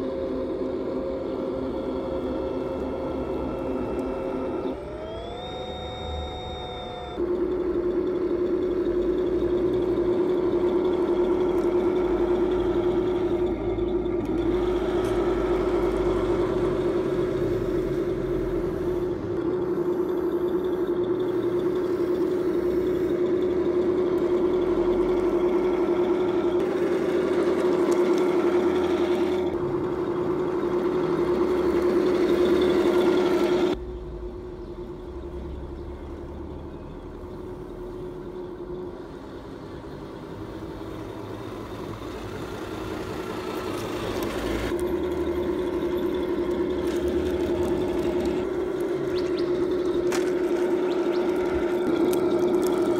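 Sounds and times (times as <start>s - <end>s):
toy tank motor whine: 0.0s - 33.8s, 37.0s - 52.9s
simulated engine sound: 0.0s - 52.9s.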